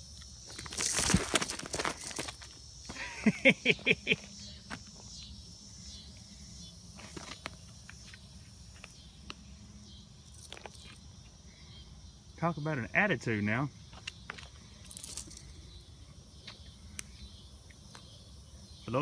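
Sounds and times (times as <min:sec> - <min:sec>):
rattlesnake rattle buzzing: 0:00.0 - 0:12.2, 0:13.8 - 0:18.8
stick on gravel: 0:00.4 - 0:02.6
footsteps on gravel: 0:00.4 - 0:03.1, 0:06.9 - 0:09.0.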